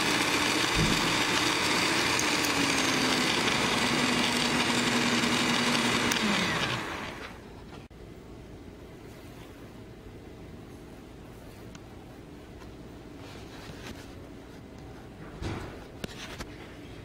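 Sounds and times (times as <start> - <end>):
electric mixer motor: 0.0 - 7.5.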